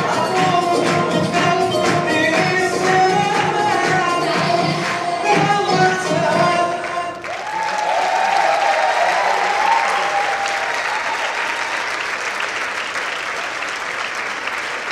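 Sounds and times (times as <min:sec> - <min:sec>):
music: 0:00.0 - 0:07.2
audience applauding and cheering: 0:00.0 - 0:14.9.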